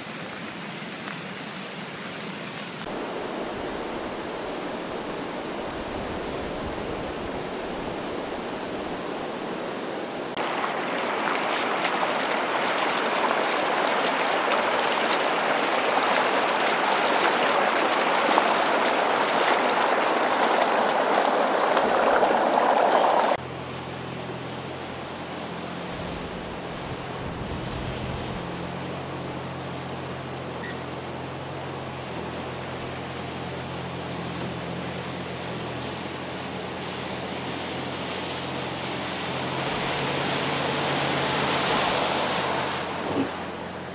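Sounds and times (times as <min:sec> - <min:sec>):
floodwater rushing: 0:00.0 - 0:43.9
water splashing in street: 0:10.2 - 0:43.9.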